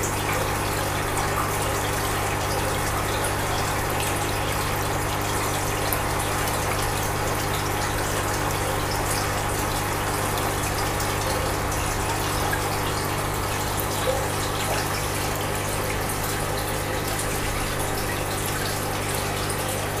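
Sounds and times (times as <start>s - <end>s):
low pump hum: 0.0s - 20.0s
rushing water: 0.0s - 20.0s.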